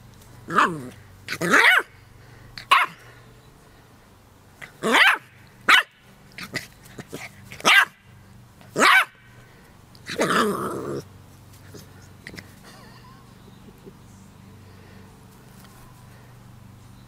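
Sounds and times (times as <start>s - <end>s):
puppy barking: 0.5s - 1.9s, 2.6s - 3.0s, 4.8s - 6.0s, 7.6s - 8.0s, 8.8s - 9.2s
puppy growling bark: 0.5s - 1.9s, 2.6s - 3.0s, 4.8s - 8.0s, 8.7s - 9.2s, 10.1s - 11.1s.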